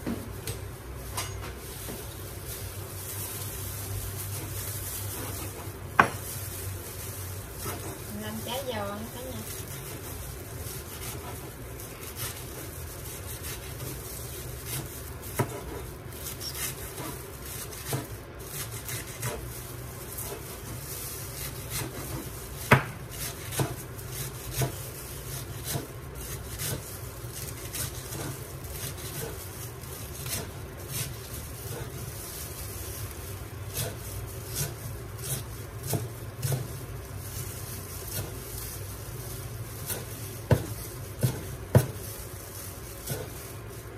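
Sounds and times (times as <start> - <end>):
knocks and clatter of utensils: 0.5 - 1.6.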